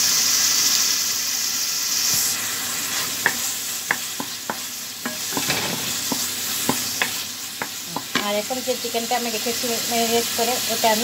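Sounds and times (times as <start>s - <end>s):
paste sizzling in oil: 0.0s - 11.0s
wooden spoon scraping a pan: 2.2s - 8.3s.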